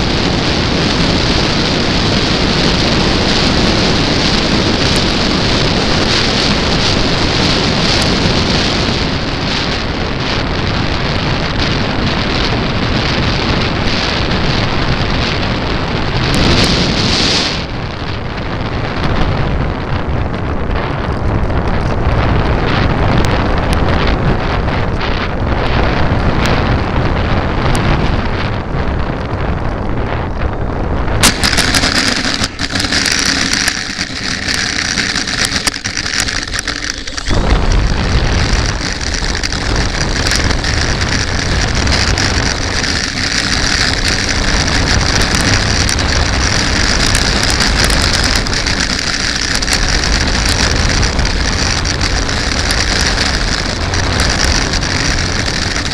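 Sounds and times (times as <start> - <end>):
wheels rumbling on pavement: 0.0 - 55.9
rushing air: 30.4 - 55.9
model plane motor whine: 31.2 - 55.9.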